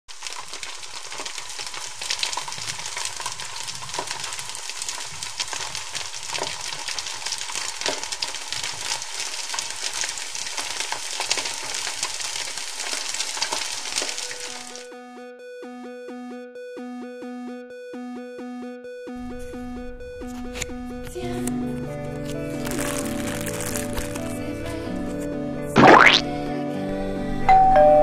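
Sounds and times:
butter sizzling in a frying pan: 0:00.1 - 0:14.8, 0:22.3 - 0:24.4.

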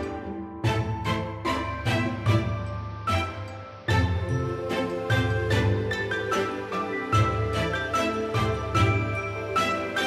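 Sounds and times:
instrumental background music: 0:00.0 - 0:10.0.

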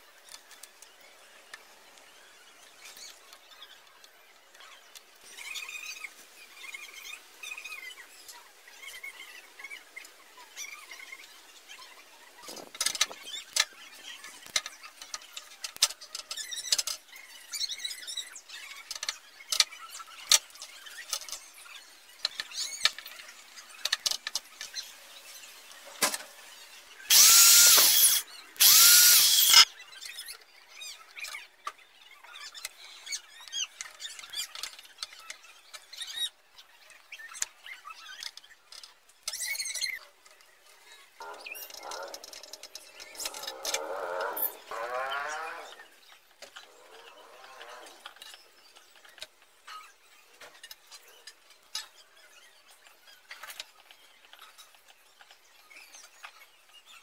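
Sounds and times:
parts being handled: 0:27.1 - 0:29.6
power drill whining: 0:27.1 - 0:29.7.

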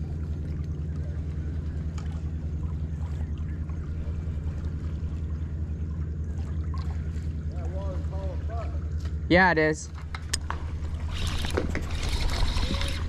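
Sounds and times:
outboard motor idling: 0:00.0 - 0:13.0.

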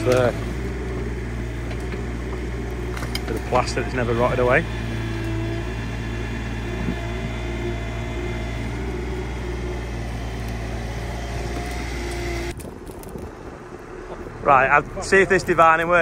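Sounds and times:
hydraulic whine: 0:00.0 - 0:12.6
diesel engine running: 0:00.0 - 0:16.0.

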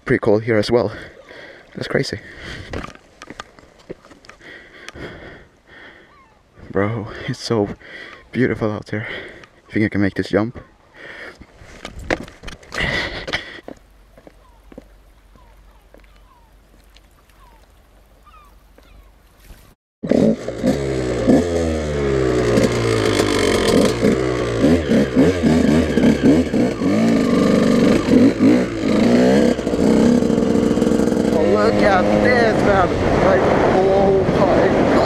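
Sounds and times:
dirt bike engine revving: 0:20.0 - 0:35.0.

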